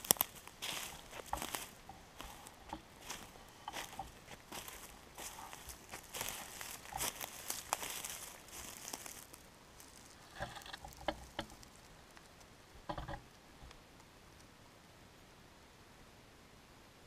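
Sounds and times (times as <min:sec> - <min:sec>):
footsteps on forest floor: 0:00.0 - 0:12.0.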